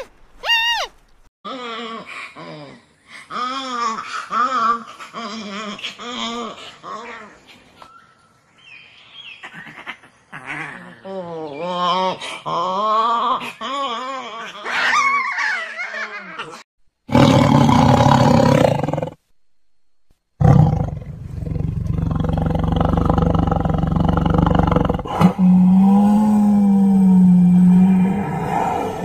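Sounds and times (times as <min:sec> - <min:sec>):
lemurs calling: 0:00.0 - 0:01.0
tiger roaring: 0:17.1 - 0:19.2, 0:20.4 - 0:29.0.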